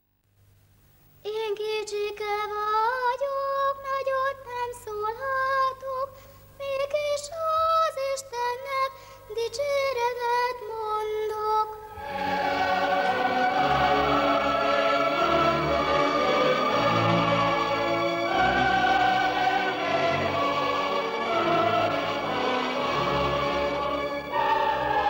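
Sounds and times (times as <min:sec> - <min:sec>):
choir with orchestra: 0:11.9 - 0:25.0.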